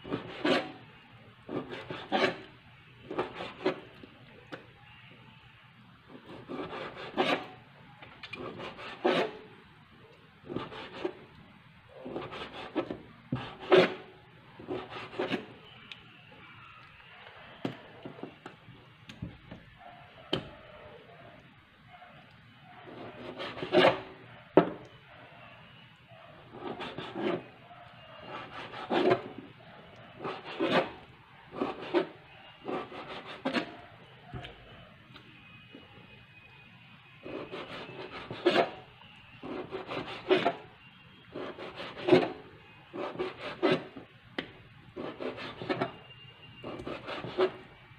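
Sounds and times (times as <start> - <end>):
knife scraping: 0.0 - 0.8, 1.5 - 4.0, 6.1 - 7.6, 8.3 - 9.5, 10.4 - 11.2, 12.0 - 15.8, 22.9 - 24.2, 26.4 - 27.6, 28.2 - 29.4, 30.2 - 33.8, 37.2 - 38.8, 39.4 - 40.6, 41.2 - 44.0, 45.0 - 47.6.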